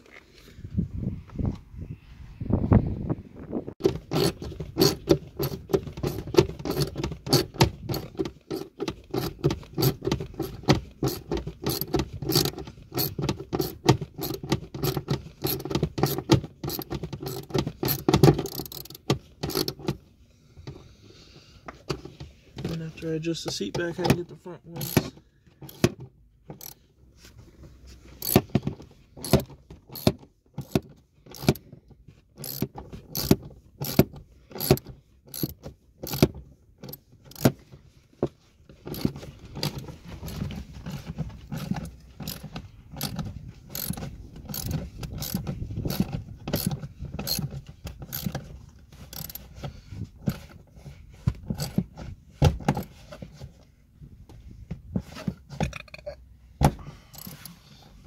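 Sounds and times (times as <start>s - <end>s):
ratchet wrench clicking: 4.0s - 19.9s, 24.8s - 25.9s, 26.6s - 26.8s, 28.2s - 28.5s, 29.2s - 31.6s, 32.4s - 36.2s, 41.6s - 47.5s, 48.1s - 48.4s, 49.1s - 49.5s, 57.1s - 57.6s.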